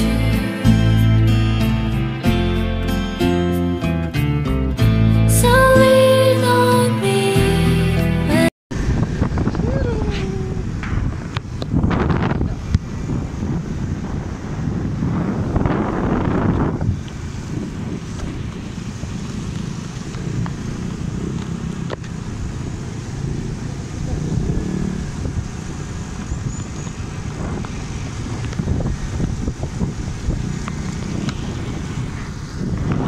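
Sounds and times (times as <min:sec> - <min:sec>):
road noise: 0:00.0 - 0:33.0
motorcycle engine running: 0:08.7 - 0:33.0.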